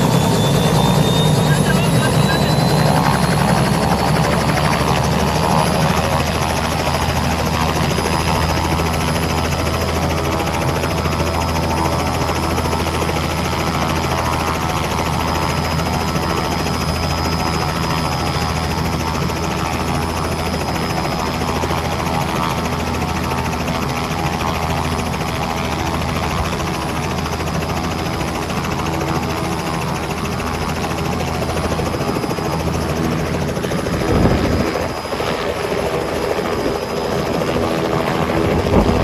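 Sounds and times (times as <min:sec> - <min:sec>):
faint high whine: 0:00.0 - 0:04.4
helicopter engine drone: 0:00.0 - 0:39.0
helicopter rotor chop: 0:00.0 - 0:39.0.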